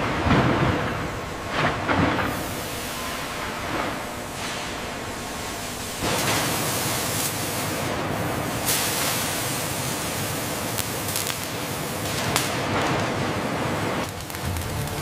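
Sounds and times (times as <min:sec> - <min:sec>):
sparks crackling: 0:00.0 - 0:15.0
cutting torch hissing: 0:02.2 - 0:12.6, 0:14.0 - 0:15.0.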